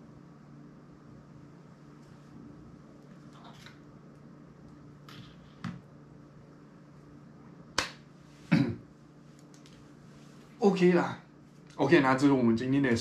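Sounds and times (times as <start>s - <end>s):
low steady hum: 0.0s - 13.0s
sharp snapping clicks: 7.8s - 8.0s.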